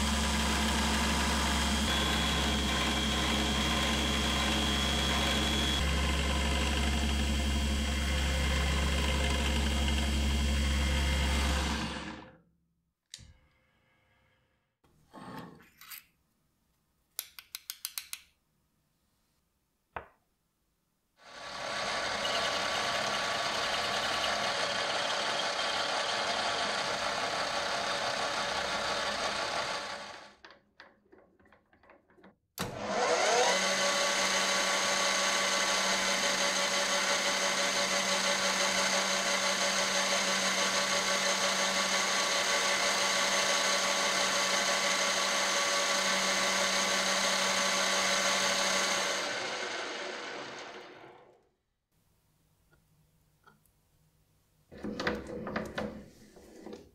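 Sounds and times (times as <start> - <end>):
drill boring into metal: 0.0 - 12.3, 21.3 - 30.4, 32.6 - 51.1
metal lathe running: 0.0 - 12.3, 21.3 - 30.3, 32.8 - 51.1.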